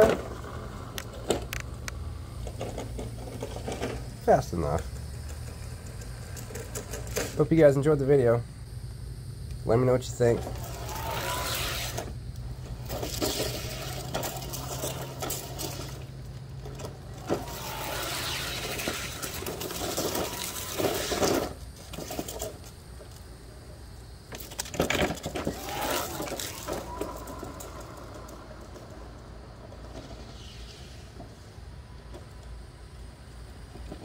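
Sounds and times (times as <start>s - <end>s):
electric motors whining: 9.1s - 22.3s, 25.3s - 31.2s.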